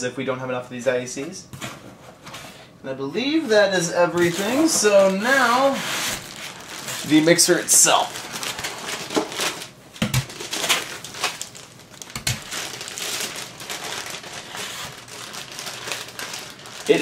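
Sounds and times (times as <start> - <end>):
foam and cardboard rustling: 3.5 - 11.6, 12.3 - 17.0
plastic bag crinkling: 4.1 - 17.0.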